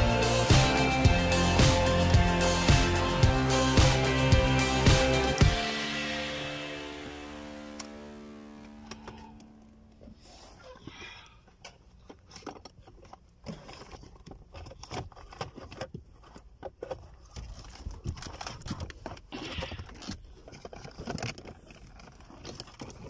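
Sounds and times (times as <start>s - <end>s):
plastic parts clicking and knocking: 11.4s - 23.0s.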